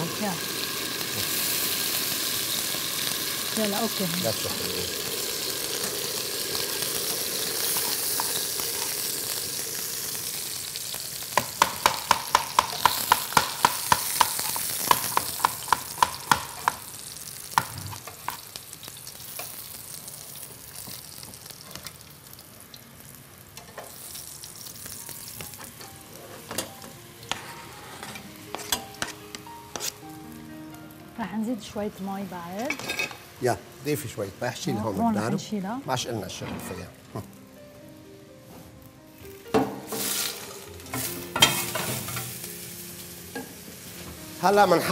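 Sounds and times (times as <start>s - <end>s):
meat sizzling in a frying pan: 0.0s - 37.5s, 38.8s - 44.9s
metal tongs clinking on a pan: 32.7s - 33.2s, 40.9s - 42.4s.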